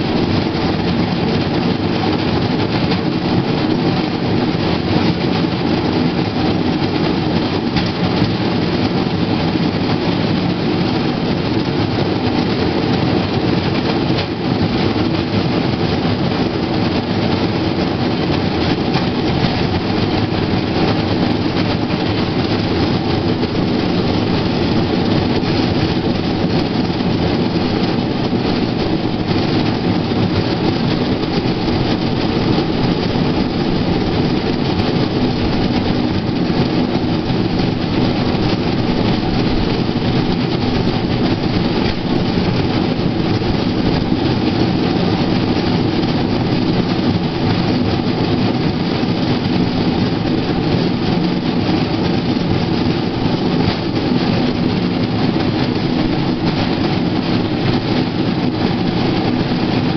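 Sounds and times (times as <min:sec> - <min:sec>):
steel wheels rolling on rail track: 0:00.0 - 0:59.9.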